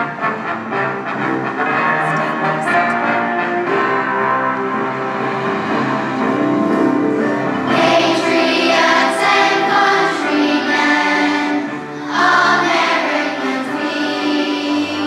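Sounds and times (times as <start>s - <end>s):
instrumental accompaniment: 0.0s - 15.0s
children singing in unison: 7.7s - 15.0s.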